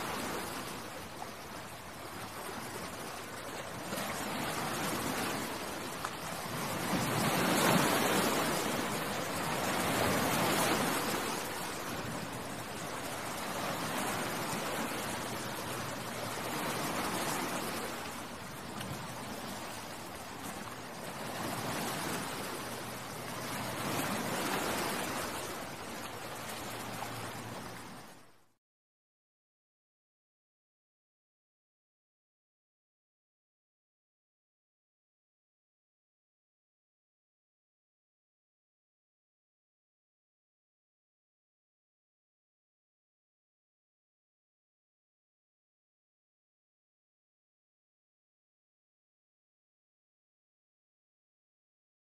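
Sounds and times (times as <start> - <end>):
sea waves rushing: 0.0 - 28.3.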